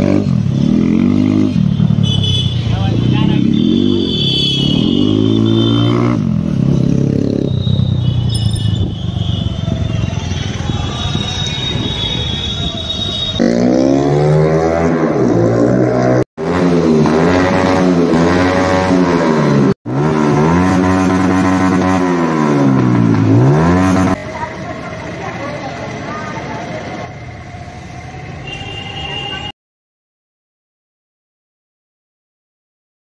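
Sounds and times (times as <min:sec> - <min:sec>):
motorcycle engine revving and idling: 0:00.0 - 0:11.3, 0:13.3 - 0:27.4.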